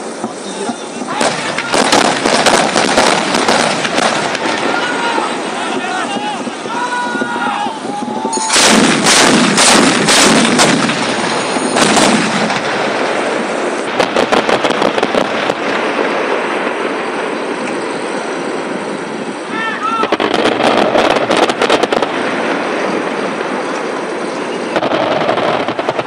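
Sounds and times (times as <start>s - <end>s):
anti-aircraft guns firing: 1.2s - 5.0s, 8.4s - 17.6s, 20.0s - 23.6s, 24.8s - 26.0s.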